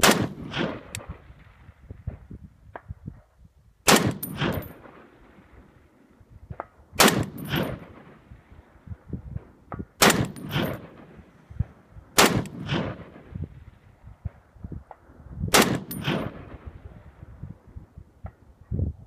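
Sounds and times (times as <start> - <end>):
rifle shots: 0.0 - 1.3, 3.9 - 5.3, 7.0 - 8.3, 10.0 - 13.5, 15.5 - 16.8.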